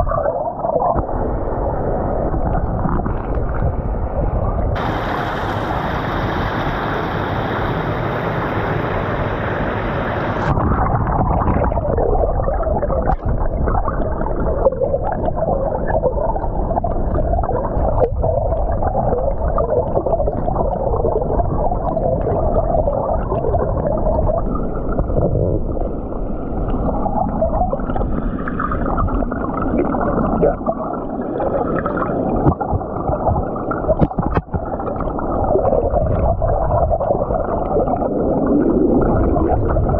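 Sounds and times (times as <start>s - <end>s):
bubbling turbulent water underwater: 0.0s - 39.9s
water rushing over concrete spillway: 4.8s - 12.0s.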